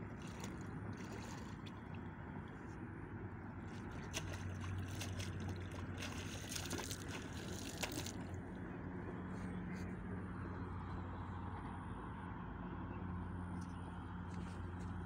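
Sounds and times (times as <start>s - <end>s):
river water splashing: 0.0s - 9.8s
steady low hum: 0.0s - 15.0s.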